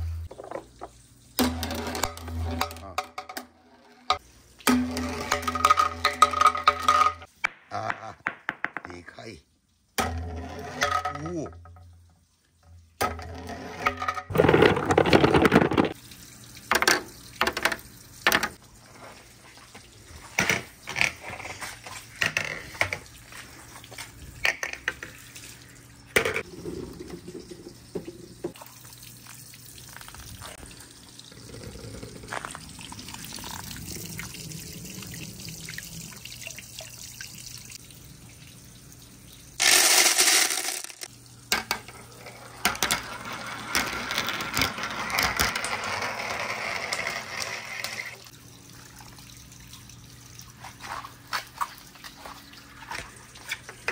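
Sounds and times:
water running: 0.0s - 13.5s, 15.3s - 43.8s, 45.9s - 53.9s
marbles clicking down a run: 39.6s - 41.1s.

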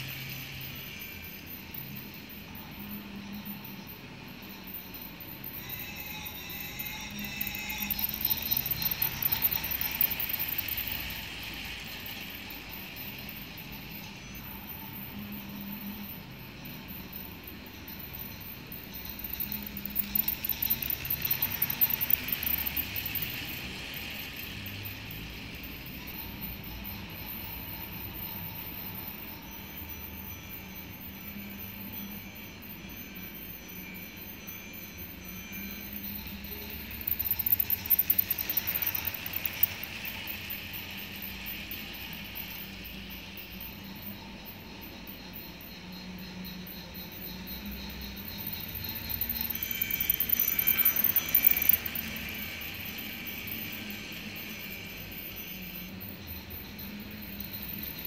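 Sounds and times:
toy train motor whirring: 0.0s - 3.9s, 4.8s - 16.3s, 17.8s - 30.5s, 34.3s - 44.6s, 46.6s - 58.0s
toy train wheels clattering: 5.4s - 14.4s, 18.2s - 27.2s, 35.4s - 43.6s, 47.5s - 58.0s
faint held tones: 17.9s - 24.2s, 33.8s - 40.5s, 47.0s - 58.0s.

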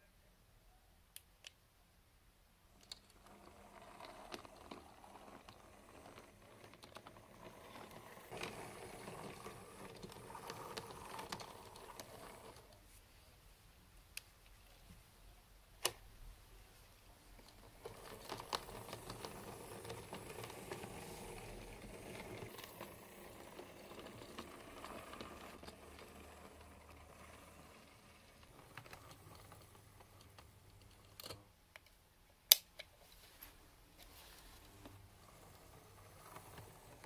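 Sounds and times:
model train motor whirr: 3.1s - 12.7s, 17.8s - 31.4s, 34.8s - 37.0s.

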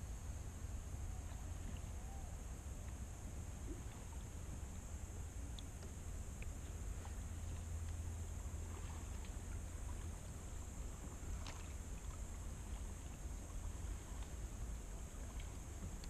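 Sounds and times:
paddle drips and splashes: 2.8s - 4.8s, 5.4s - 16.0s.

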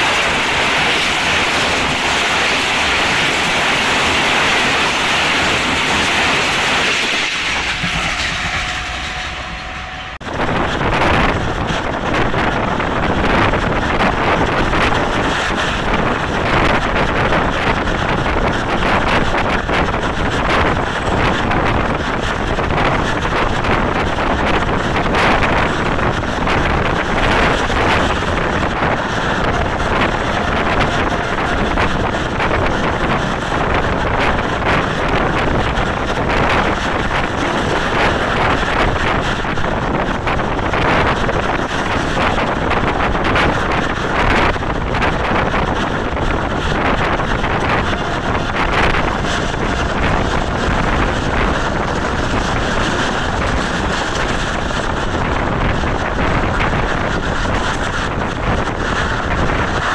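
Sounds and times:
passenger train running: 0.0s - 59.9s
wind buffeting microphone: 0.0s - 59.9s.

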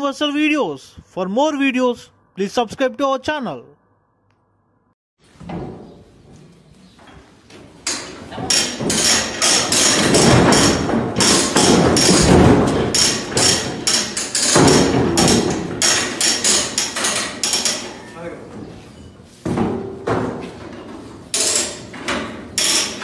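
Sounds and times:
knocks on steel chute: 8.5s - 17.8s.

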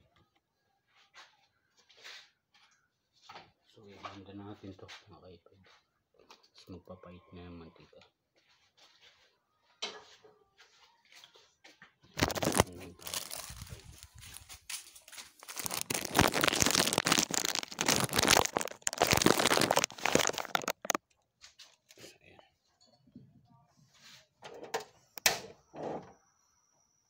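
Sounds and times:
plastic crinkling at microphone: 12.2s - 21.0s.

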